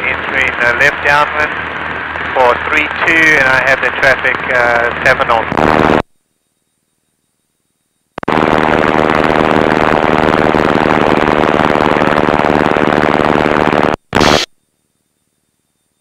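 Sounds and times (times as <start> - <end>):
aircraft engine and cabin noise: 0.0 - 6.1.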